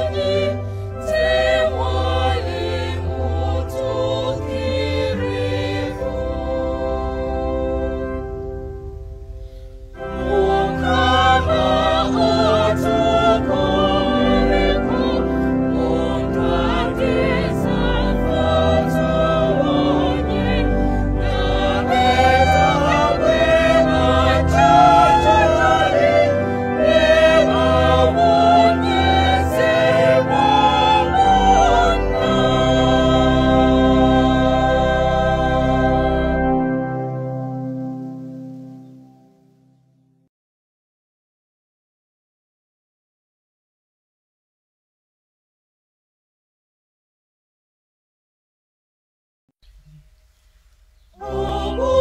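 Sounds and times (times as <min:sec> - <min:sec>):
choir singing: 0:00.0 - 0:08.9, 0:10.0 - 0:38.6, 0:51.1 - 0:52.0.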